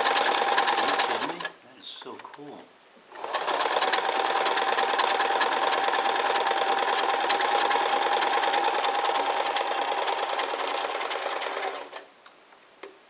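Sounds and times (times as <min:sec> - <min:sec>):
sewing machine running: 0:00.0 - 0:01.5, 0:03.1 - 0:12.1.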